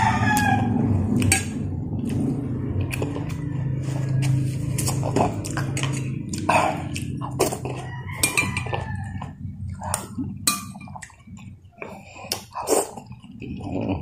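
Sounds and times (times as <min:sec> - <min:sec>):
person slurping: 0:02.0 - 0:07.9, 0:09.2 - 0:10.4, 0:11.0 - 0:14.0.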